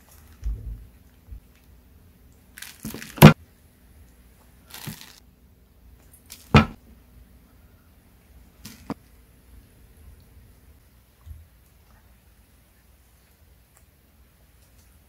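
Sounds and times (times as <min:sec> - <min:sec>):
plastic rustling: 0:00.0 - 0:01.7, 0:02.5 - 0:03.4, 0:04.6 - 0:05.2.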